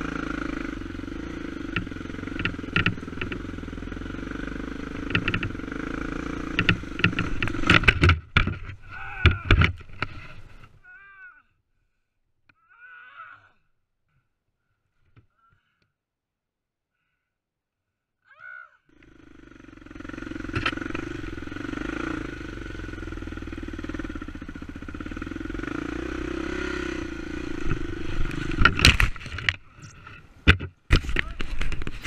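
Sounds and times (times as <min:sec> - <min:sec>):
dirt bike engine revving: 0:00.0 - 0:10.2, 0:18.9 - 0:30.0.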